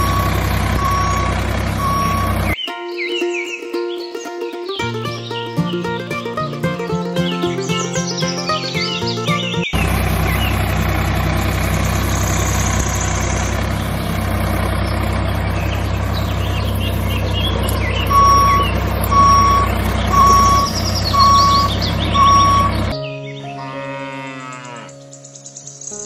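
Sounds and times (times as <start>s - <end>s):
reversing alarm beeping: 0.0s - 2.6s, 17.2s - 23.0s
tractor engine running: 0.0s - 2.6s, 5.8s - 23.0s
faint bird chirps: 11.6s - 23.5s.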